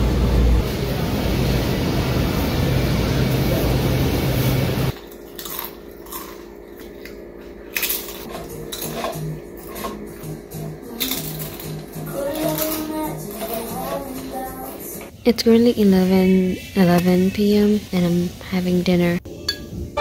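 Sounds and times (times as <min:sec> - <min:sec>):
shop noise: 0:00.0 - 0:05.0
potato crisps crunching: 0:05.0 - 0:07.1, 0:07.7 - 0:10.0, 0:10.9 - 0:14.4
shopping cart rolling: 0:11.0 - 0:14.9.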